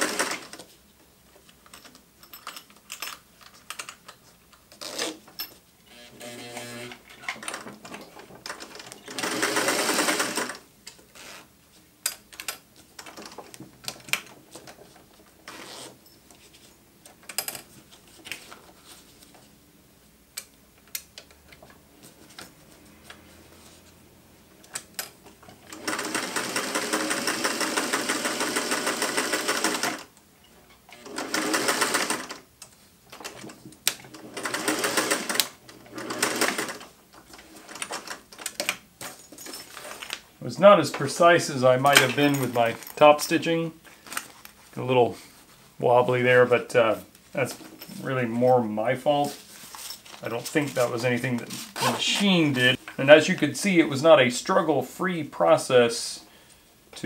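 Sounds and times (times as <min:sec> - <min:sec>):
sewing machine stitching: 0:00.0 - 0:00.6, 0:08.5 - 0:10.6, 0:25.6 - 0:30.1, 0:30.9 - 0:32.4, 0:34.1 - 0:36.9
clicks and knocks of handling: 0:01.4 - 0:05.6.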